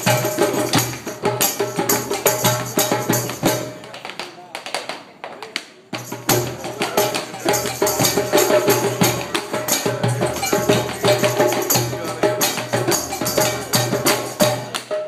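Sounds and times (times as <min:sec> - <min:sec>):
tap shoes clicking on floor: 0:03.3 - 0:05.7.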